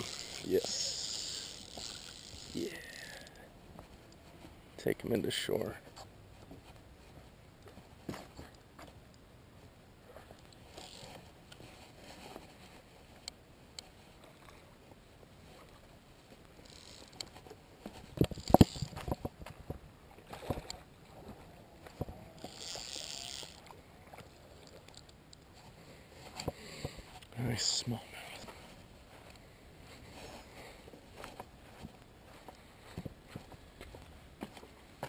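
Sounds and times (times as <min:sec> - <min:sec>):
fishing reel knocks and clicks: 0:00.0 - 0:03.4, 0:16.6 - 0:17.3, 0:18.2 - 0:19.1, 0:22.4 - 0:23.7.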